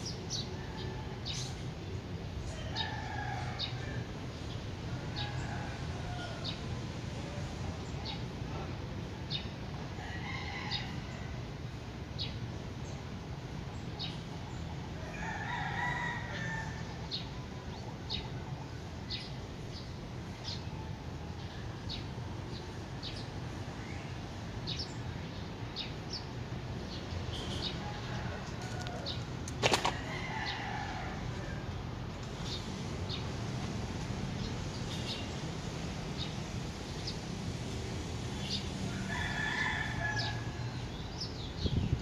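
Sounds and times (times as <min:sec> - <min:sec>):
rooster crowing: 0:02.5 - 0:04.1, 0:10.0 - 0:11.4, 0:15.0 - 0:17.0, 0:27.6 - 0:31.7, 0:38.9 - 0:40.8.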